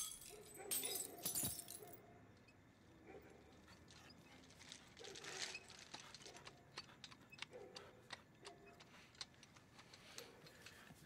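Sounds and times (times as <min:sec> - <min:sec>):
faint clicks and taps: 0:05.4 - 0:11.0.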